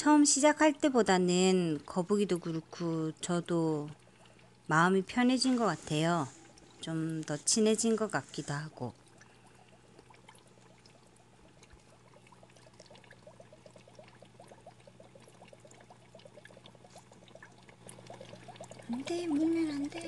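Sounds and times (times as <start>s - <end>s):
aquarium water bubbling: 0.0s - 20.0s
low steady hum: 0.0s - 20.0s.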